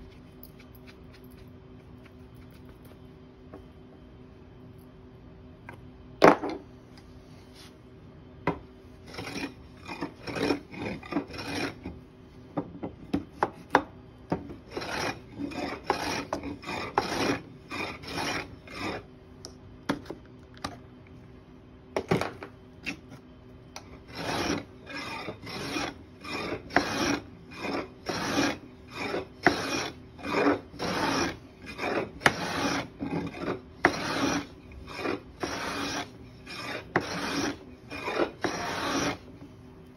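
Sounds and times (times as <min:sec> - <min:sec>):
hand plane rasping strokes: 0:09.1 - 0:11.8, 0:14.7 - 0:19.0, 0:24.1 - 0:39.2.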